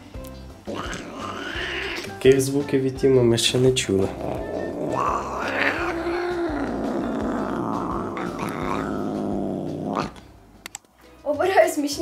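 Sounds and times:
cat yowling: 0.7s - 2.2s, 4.1s - 10.2s.

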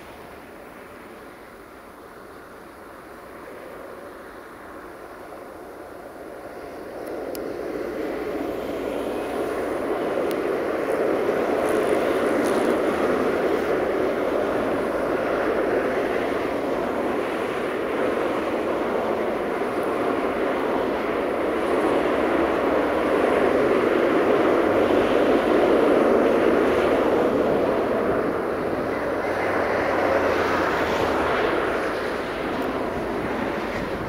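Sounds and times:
train wagons rumbling on rails: 7.6s - 34.0s.

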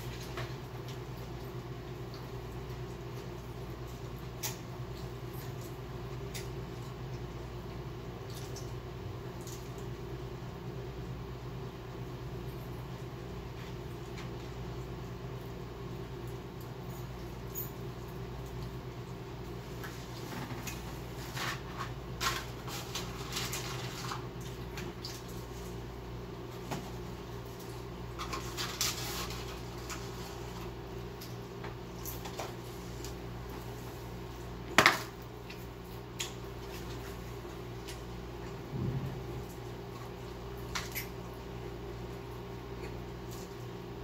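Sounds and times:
steady low hum: 0.0s - 44.0s
food wrappers crinkling: 20.7s - 25.7s.

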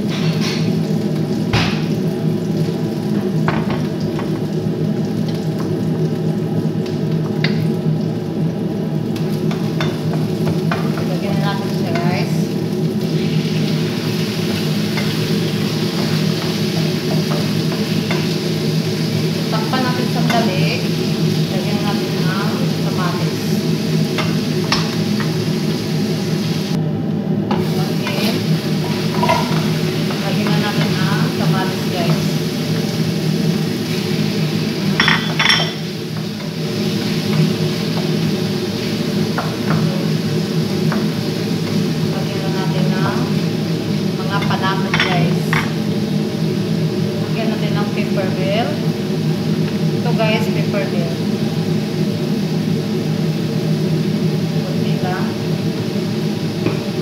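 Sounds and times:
vegetables frying in a pot: 0.0s - 57.0s
utensils clicking on cookware: 14.9s - 18.4s, 27.5s - 31.1s.

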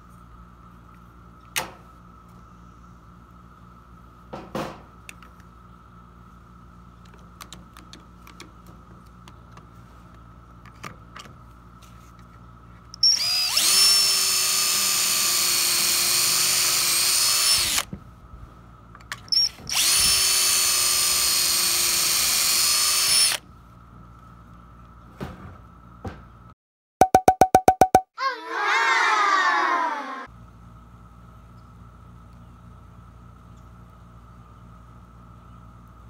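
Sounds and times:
power drill whining: 13.0s - 17.9s, 19.4s - 23.4s.

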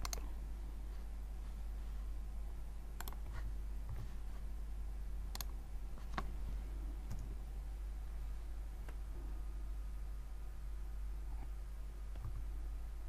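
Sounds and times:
mouse and keyboard clicks: 0.0s - 0.3s, 3.0s - 3.3s
low steady hum: 0.0s - 13.0s.

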